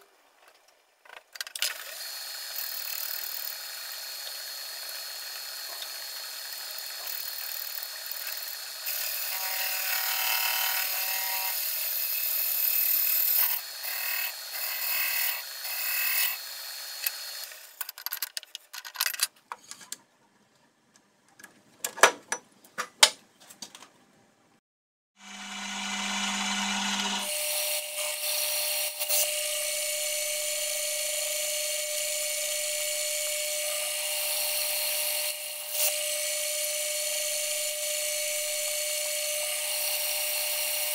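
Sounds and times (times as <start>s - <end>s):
lathe cutting metal: 25.3s - 30.7s.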